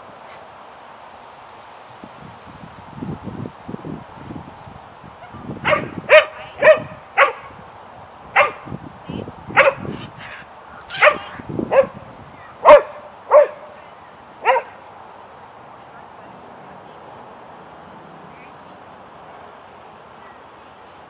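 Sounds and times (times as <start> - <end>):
dog barking: 5.6 - 7.5, 8.4 - 8.7, 9.6 - 9.9, 10.9 - 12.0, 12.6 - 13.8, 14.4 - 14.8.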